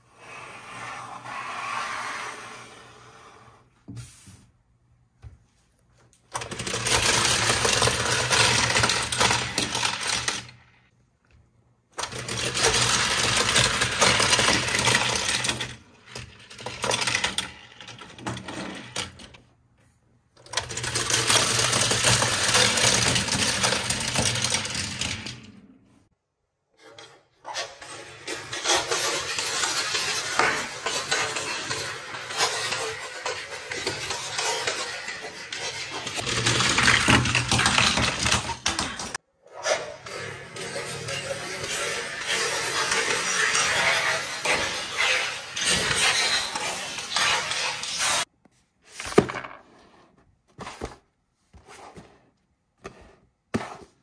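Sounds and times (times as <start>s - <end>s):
toy cars rattling down ramps: 6.3s - 10.8s, 12.0s - 19.4s, 20.4s - 25.7s, 27.5s - 48.3s.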